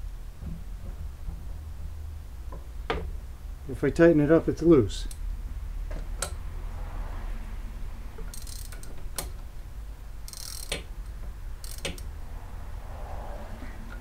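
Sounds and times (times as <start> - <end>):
steady low hum: 0.0 - 14.0
ratchet wrench ratcheting: 8.1 - 9.5, 10.2 - 12.2.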